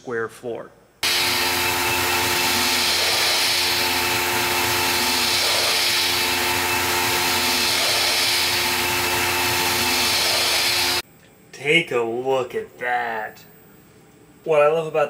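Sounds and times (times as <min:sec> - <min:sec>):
hiss of metal cutting: 0:01.0 - 0:11.0
mill spindle whine: 0:01.0 - 0:11.0.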